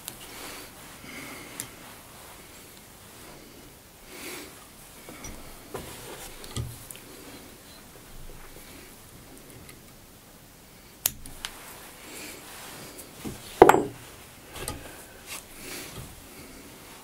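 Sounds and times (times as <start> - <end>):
small sharp clicks: 11.0 - 11.6
tool knocking on bench: 13.6 - 14.0.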